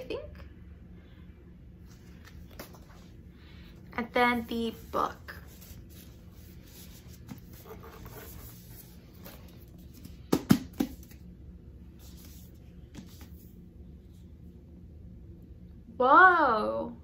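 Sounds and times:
soft packaging rustling: 1.8 - 3.2
knocks on a book: 10.3 - 11.0.

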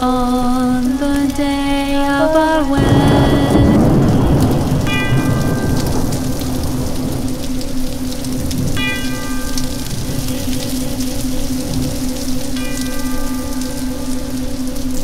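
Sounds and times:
low musical drone: 0.0 - 15.0
rain falling: 0.0 - 15.0
thunder rumble: 2.7 - 15.0
bell-like chime: 3.1 - 7.3, 8.4 - 15.0.

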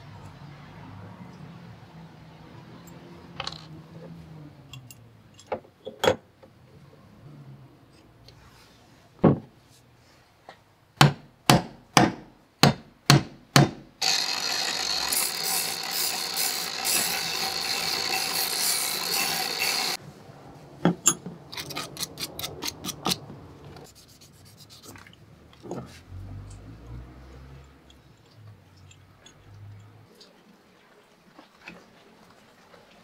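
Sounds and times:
angle grinder polishing: 14.0 - 20.0.

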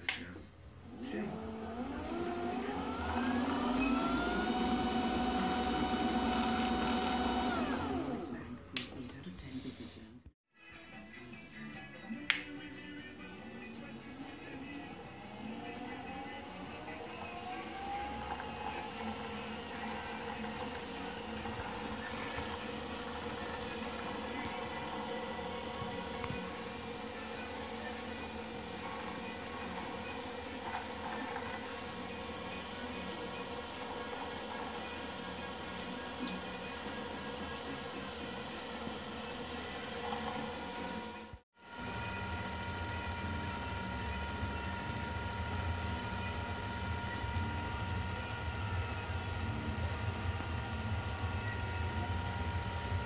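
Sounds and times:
lathe motor whine: 0.8 - 8.6, 13.4 - 53.0
switch click: 12.3 - 12.5.

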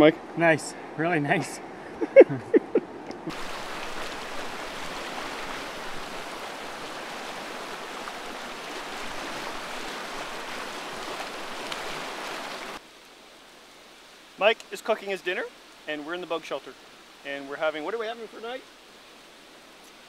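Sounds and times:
river rapids rushing: 3.2 - 12.8.

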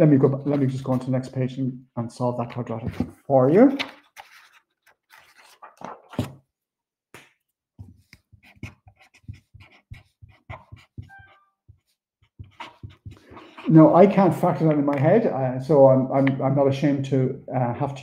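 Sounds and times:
paper rustling: 3.7 - 6.4
marker scratching on paper: 7.8 - 14.3.

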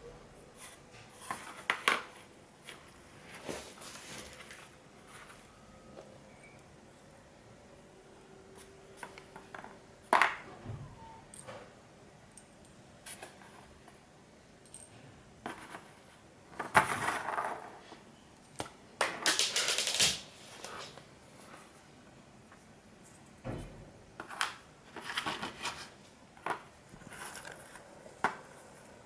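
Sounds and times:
scraping and rustling of cardboard: 24.2 - 28.4.

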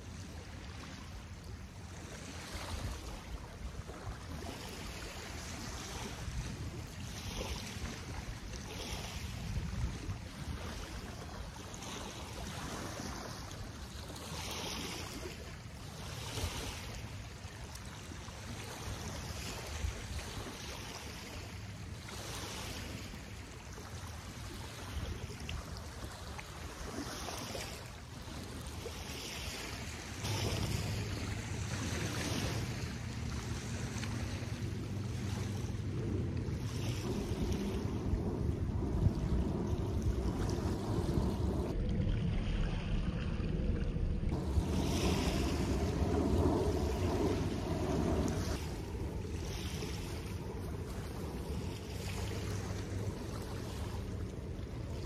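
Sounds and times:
waves lapping on sandy shore: 0.0 - 55.0
wind buffeting microphone: 0.0 - 55.0.

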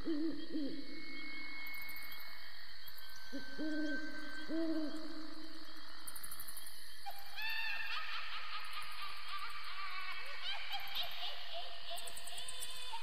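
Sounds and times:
low owl hoots: 0.0 - 1.2, 3.3 - 5.5.

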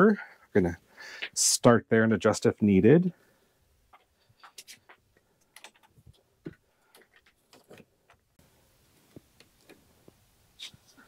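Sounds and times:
faint clicks and knocks: 3.9 - 8.4.

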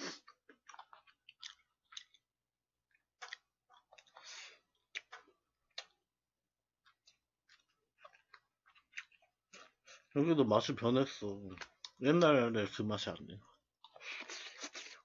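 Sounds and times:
person chewing: 0.0 - 6.2, 6.8 - 10.1, 13.5 - 15.0.

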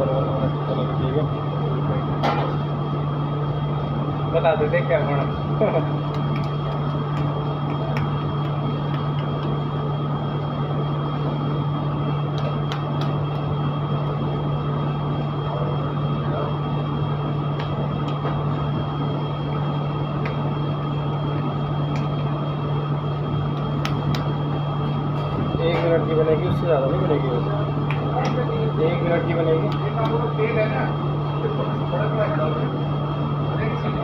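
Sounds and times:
kitchen machinery drone: 0.0 - 34.0
hands patting dough: 6.0 - 9.6, 12.3 - 13.6, 23.5 - 24.4.

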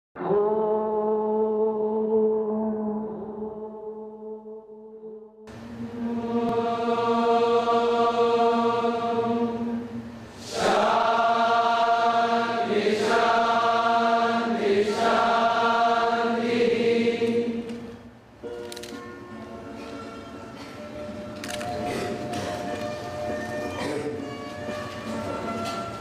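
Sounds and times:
mantra chanting: 0.2 - 5.2.

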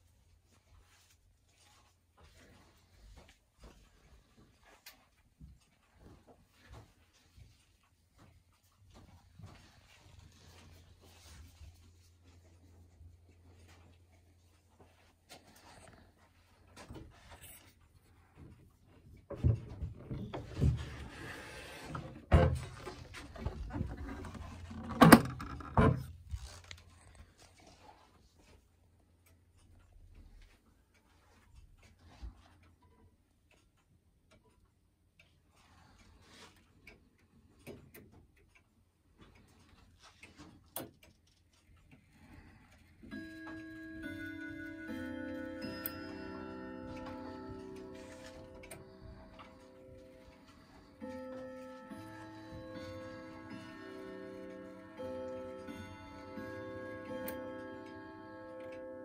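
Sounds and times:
clock movement clicking: 29.0 - 59.0
clock chime rods ringing: 43.0 - 59.0.

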